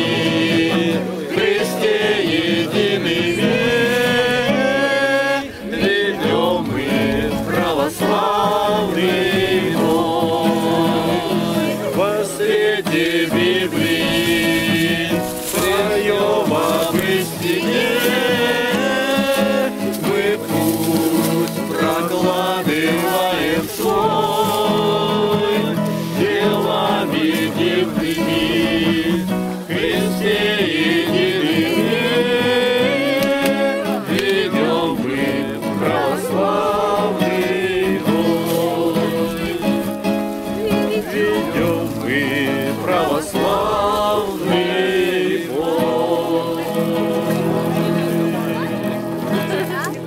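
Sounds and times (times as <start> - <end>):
strummed acoustic guitar: 0.0 - 50.0
voices singing religious song: 0.0 - 50.0.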